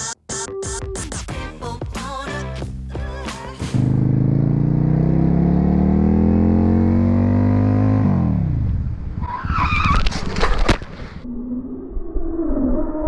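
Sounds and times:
motorcycle engine accelerating: 3.7s - 9.2s
tyre squeal: 9.2s - 10.6s.

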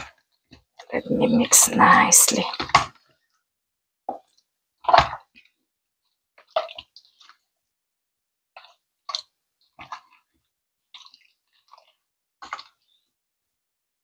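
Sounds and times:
wet squelching of chicken in marinade: 6.4s - 7.5s, 8.5s - 13.1s.

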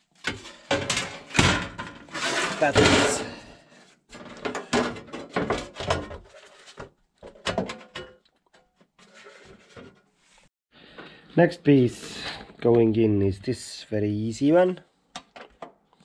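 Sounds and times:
sheet metal knocking and scraping: 0.2s - 3.4s.

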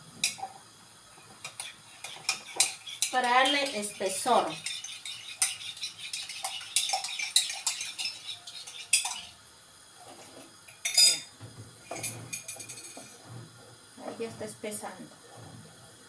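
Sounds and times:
kitchenware clatter: 1.2s - 9.4s, 10.2s - 14.4s
teaspoon clinking against mug: 4.5s - 9.3s, 10.8s - 11.3s.

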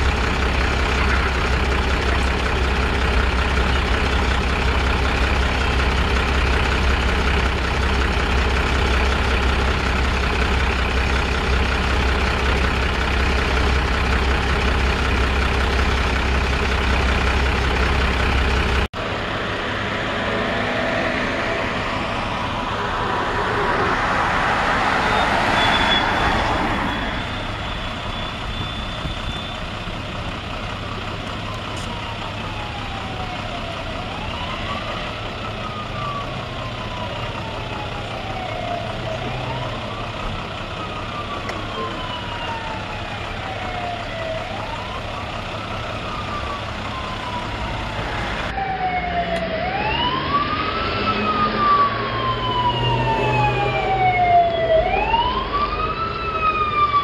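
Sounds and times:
vehicle rushing past: 19.2s - 27.6s, 47.3s - 56.9s
siren wailing: 19.6s - 29.9s, 30.9s - 57.0s
fainter second siren: 20.3s - 29.9s, 31.2s - 57.0s.

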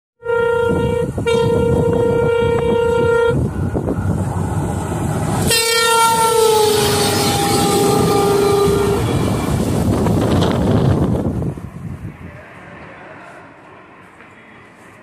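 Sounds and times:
locomotive horn blasts: 0.2s - 3.7s, 5.4s - 9.7s
train rumbling: 0.2s - 15.0s.

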